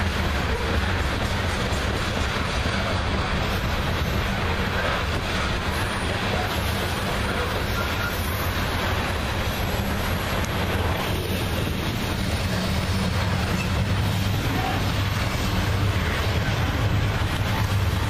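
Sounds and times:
train wheels rolling on rails: 0.0s - 18.0s.

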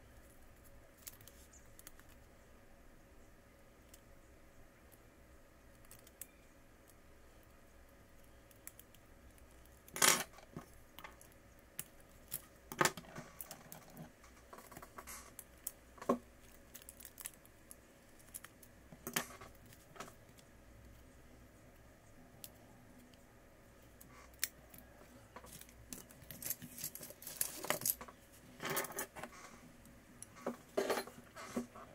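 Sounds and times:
tools and parts clicking: 24.3s - 29.3s.

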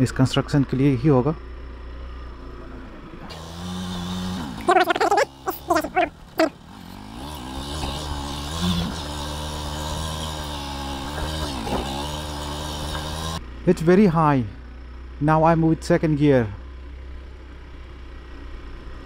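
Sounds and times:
motorcycle engine revving: 1.9s - 13.6s.

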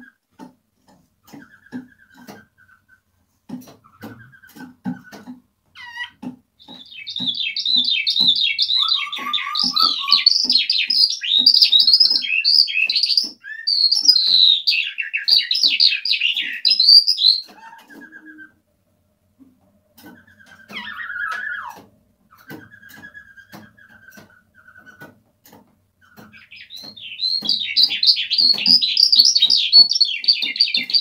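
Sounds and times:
skylark singing: 5.8s - 18.5s, 20.1s - 21.8s, 26.1s - 31.0s.

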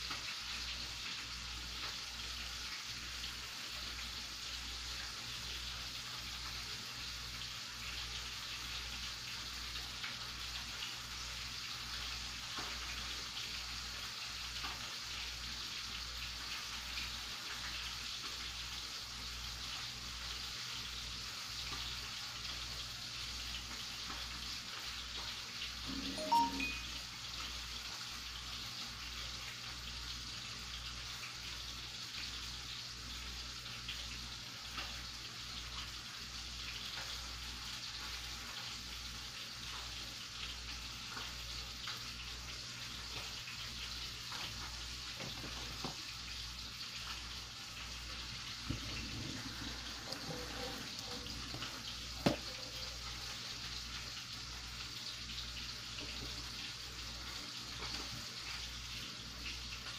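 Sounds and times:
steady kitchen hiss: 0.0s - 59.9s.

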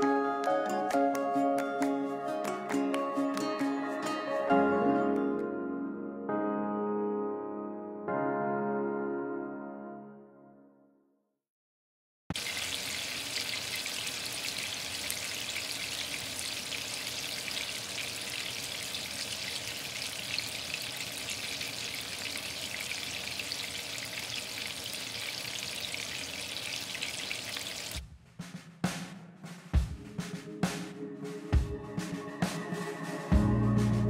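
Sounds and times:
fish sizzling in hot oil: 12.3s - 28.0s
music with drum beat: 28.0s - 34.0s.

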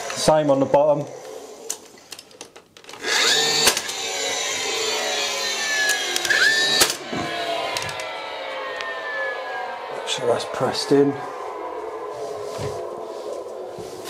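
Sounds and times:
pin gun motor whine: 0.0s - 11.8s
pin gun firing cracks: 2.9s - 4.0s, 5.8s - 7.1s.

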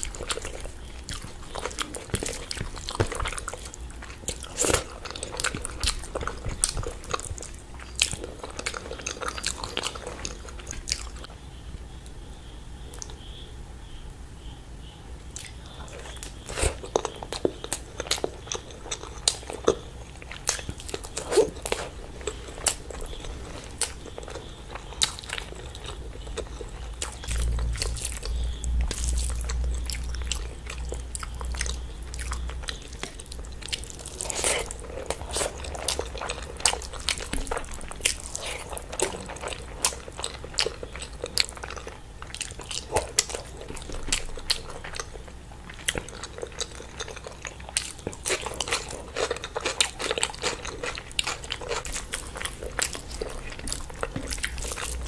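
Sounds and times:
chewing and mouth clicks: 0.0s - 11.3s, 15.3s - 55.0s
low rumble: 26.9s - 33.4s.

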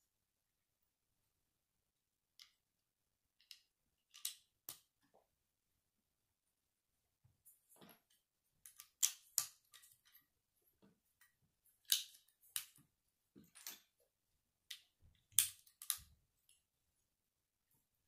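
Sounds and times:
plastic bricks clicking: 3.4s - 4.9s, 14.7s - 16.1s.

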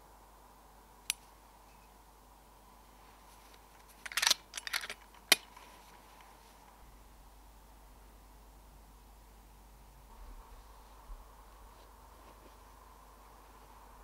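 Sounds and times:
air rifle metallic clicks and rattles: 3.8s - 5.7s.

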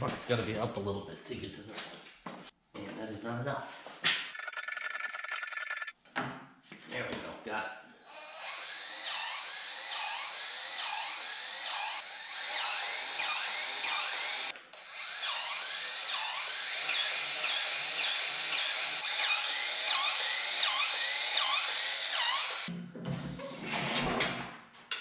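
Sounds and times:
grease gun motor whining: 4.3s - 5.9s.

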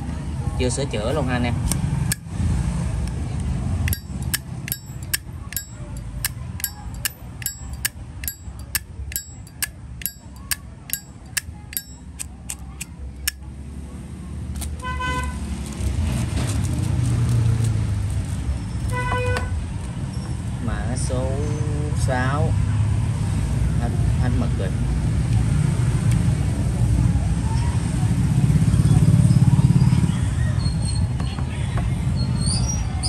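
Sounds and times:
low traffic rumble: 0.0s - 33.0s
lighter lid metallic clinks: 3.9s - 13.4s.

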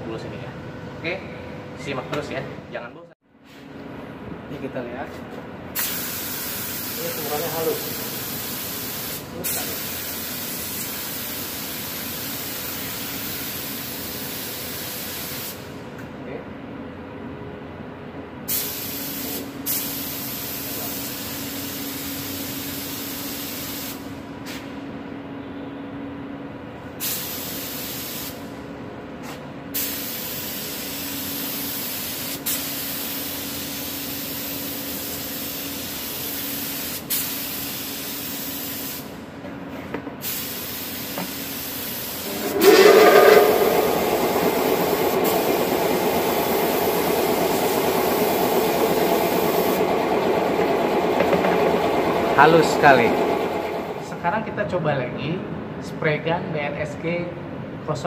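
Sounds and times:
spray gun hissing: 40.2s - 49.8s
air compressor humming: 41.2s - 54.2s.

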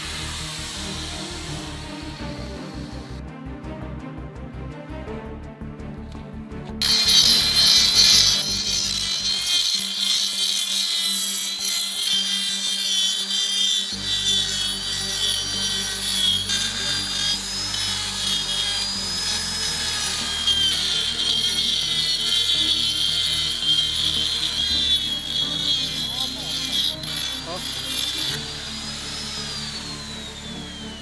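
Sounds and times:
rotary tool grinding stone: 6.8s - 31.0s.

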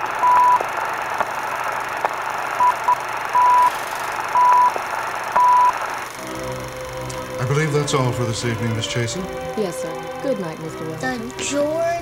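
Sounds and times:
old film hiss: 0.0s - 12.0s.

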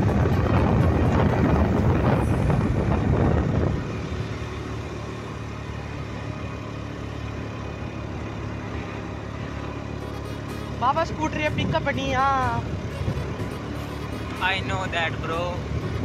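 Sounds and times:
wind buffeting microphone: 0.0s - 5.2s, 10.7s - 16.0s
motor scooter engine: 0.0s - 16.0s.

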